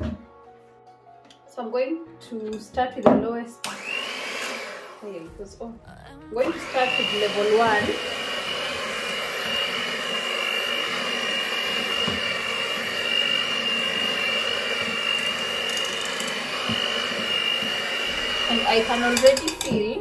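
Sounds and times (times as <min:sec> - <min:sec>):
electric hand mixer whining: 0:03.6 - 0:05.6, 0:06.4 - 0:20.0.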